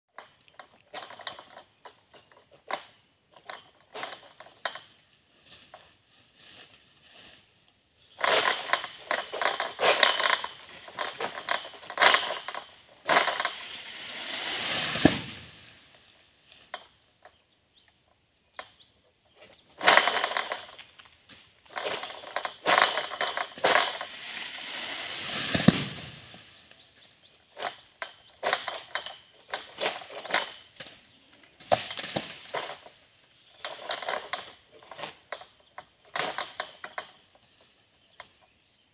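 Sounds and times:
fronds crackling and tearing: 8.2 - 15.8, 21.7 - 26.4
sickle clicking on fronds: 8.2 - 15.8
fronds crashing down through leaves: 8.2 - 16.0, 21.7 - 26.7.

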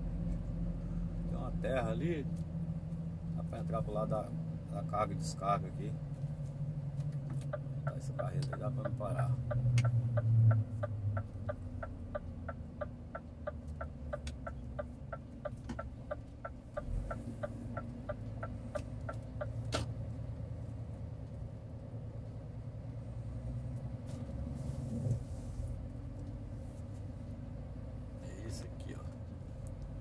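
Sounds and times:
low engine hum: 0.0 - 30.0
turn signal ticking: 6.0 - 20.5.

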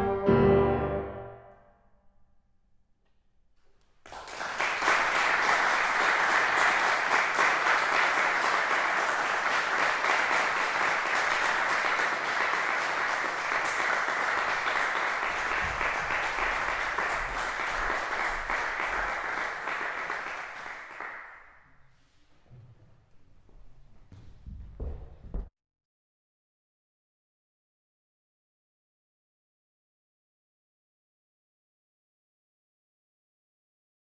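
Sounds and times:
audience applauding: 4.0 - 21.6.

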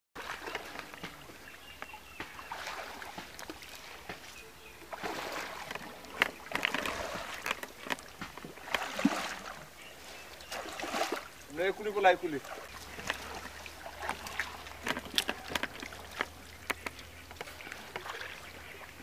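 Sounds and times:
water sloshing and splashing: 0.2 - 19.0
voices: 11.5 - 13.3.

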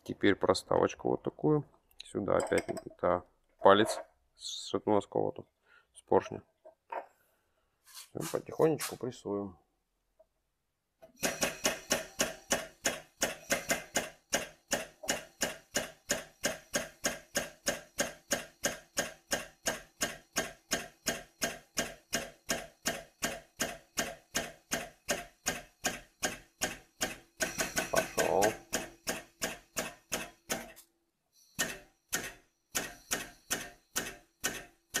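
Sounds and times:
tool clicking: 31.6 - 35.0.

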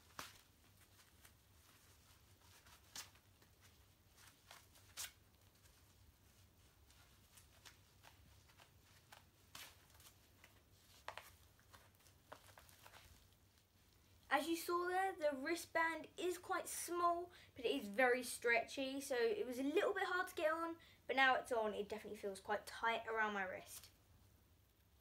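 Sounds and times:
rubber gloves rustling on: 0.0 - 16.9.

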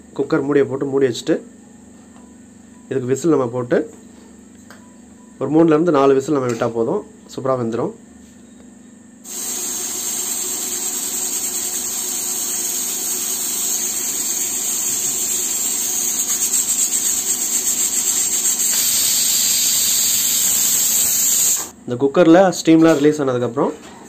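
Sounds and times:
pressure cooker hissing steam: 9.3 - 21.8.

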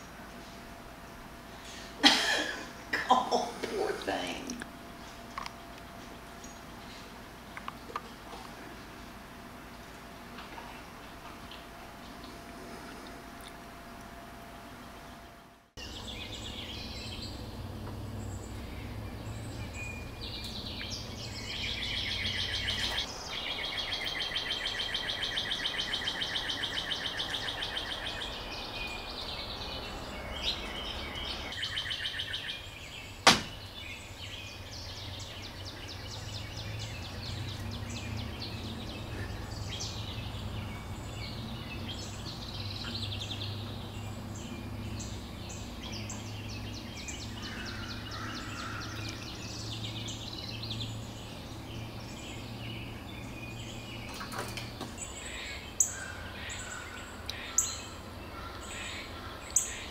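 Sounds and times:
low steady rumble: 0.0 - 24.1
birds chirping: 0.0 - 59.9
sharp knock: 33.2 - 33.6.

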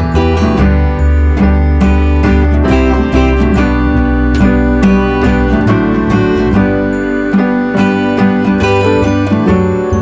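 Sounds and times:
acoustic guitar strumming: 0.0 - 10.0.

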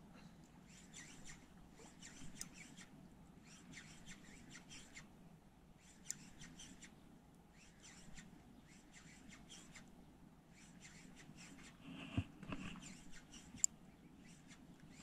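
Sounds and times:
high chirps and squeaks: 0.7 - 5.0, 7.5 - 9.8.

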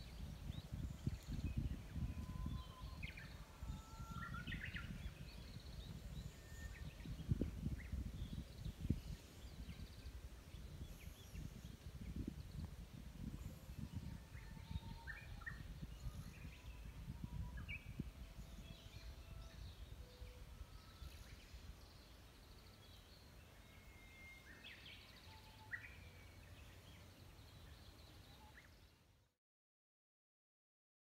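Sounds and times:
low gusty rumble: 0.0 - 23.3
faint bird chirps: 0.0 - 29.1.

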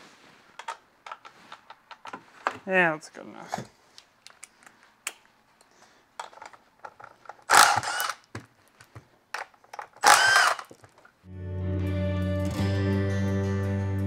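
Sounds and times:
power driver motor whine: 7.5 - 8.2, 10.0 - 10.6
guitar music: 11.3 - 14.0.

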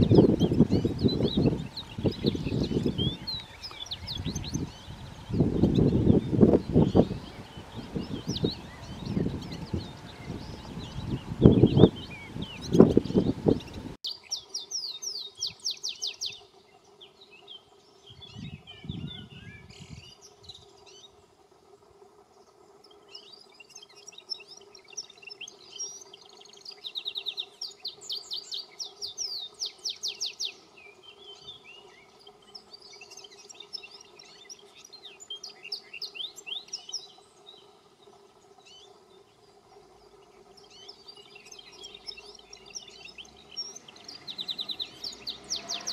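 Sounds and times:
canary singing: 0.0 - 16.6, 40.1 - 45.9.

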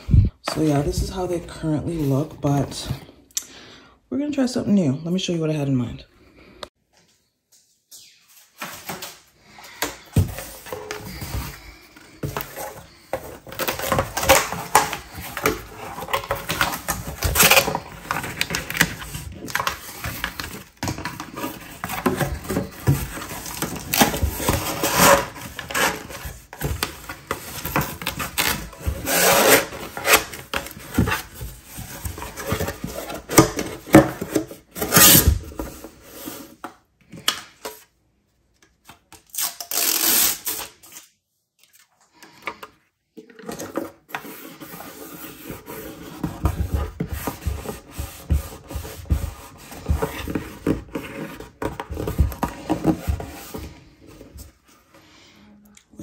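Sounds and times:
cardboard scraping and creasing: 10.0 - 36.6, 43.3 - 54.8.

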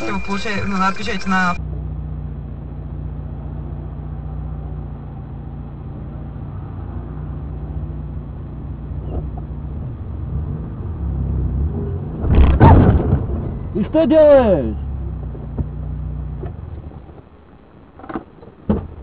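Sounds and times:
car engine and road noise: 0.0 - 19.0
loud knock: 12.2 - 13.6.

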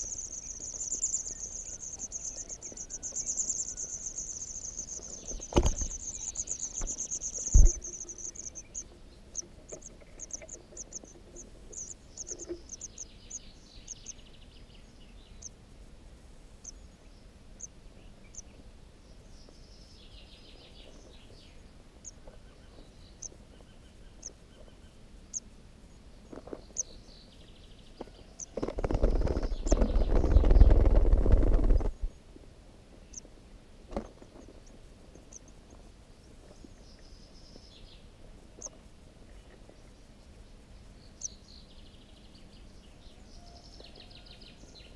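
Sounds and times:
nestlings begging peeps: 0.0 - 14.2, 28.4 - 32.1
wings rustling flutter: 4.7 - 8.5, 28.4 - 32.1
sharp thumps: 6.8 - 8.0.

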